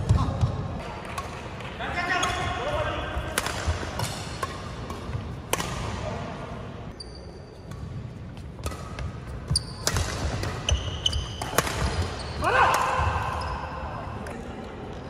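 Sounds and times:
rackets smacking shuttlecock: 0:03.3 - 0:06.2, 0:07.7 - 0:13.2
shoe squeaking on wooden floor: 0:09.5 - 0:09.8, 0:10.6 - 0:11.4.

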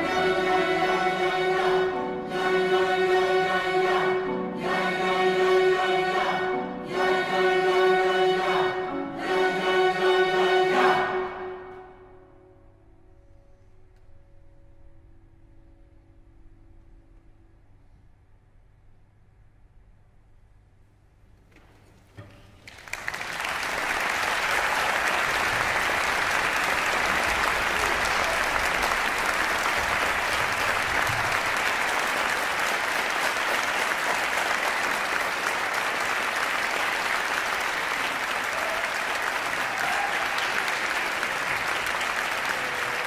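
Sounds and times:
audience applauding: 0:22.6 - 0:43.0.

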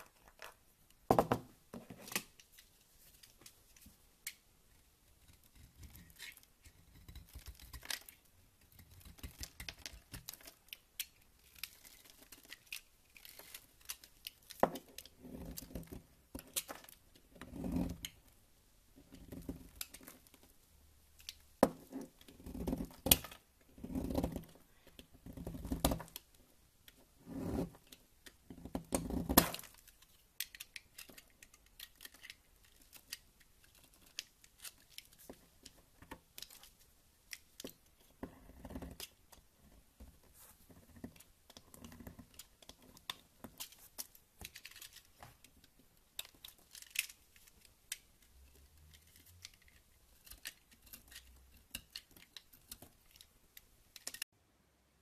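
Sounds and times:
knife cutting soap: 0:05.0 - 0:18.2, 0:21.2 - 0:26.3, 0:46.1 - 0:54.3.

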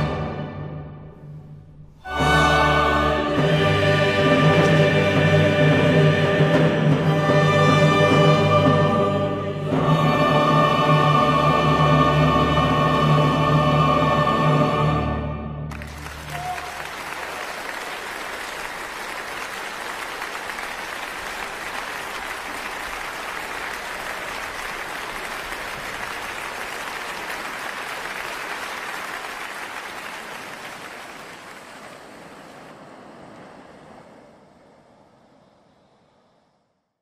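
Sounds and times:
audience applauding: 0:15.7 - 0:33.7.

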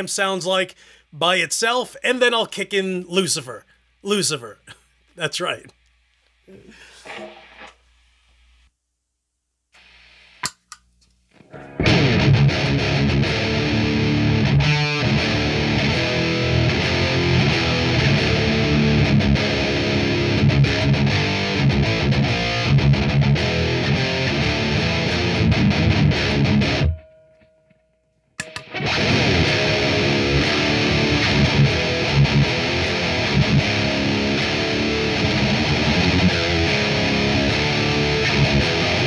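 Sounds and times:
distorted electric guitar riffing: 0:11.4 - 0:27.0, 0:28.4 - 0:39.0.

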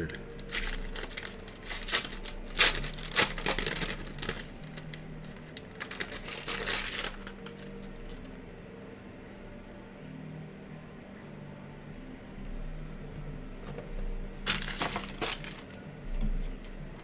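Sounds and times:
foil wrapper tearing and crinkling: 0:00.0 - 0:08.2, 0:14.5 - 0:15.8.

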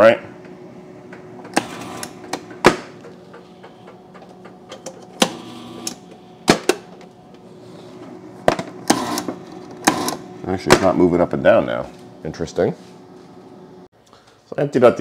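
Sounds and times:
refrigerator low hum: 0:00.0 - 0:14.3
ice maker solenoid clicking: 0:03.9 - 0:06.0, 0:08.8 - 0:10.2.

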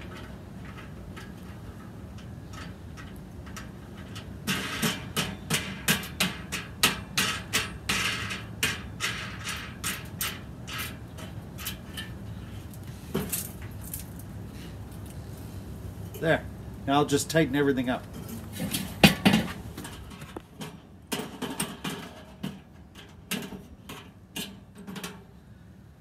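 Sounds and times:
metallic clicking and scraping: 0:00.0 - 0:16.3, 0:17.9 - 0:25.3.

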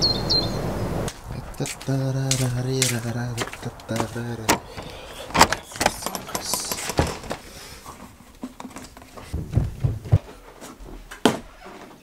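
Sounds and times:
handling clicks and knocks: 0:01.7 - 0:12.0
dull footstep thuds: 0:09.3 - 0:11.4.

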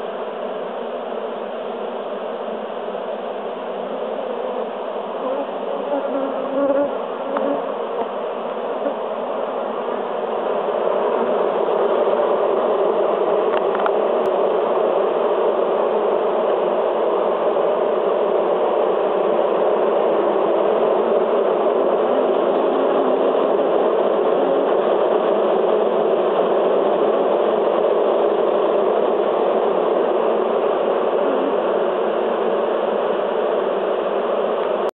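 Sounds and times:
bees buzzing: 0:03.7 - 0:12.5, 0:20.8 - 0:25.3.

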